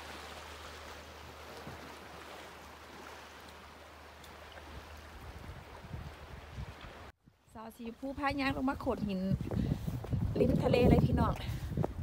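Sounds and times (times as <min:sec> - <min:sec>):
sea water washing against rocks: 0:00.0 - 0:07.1.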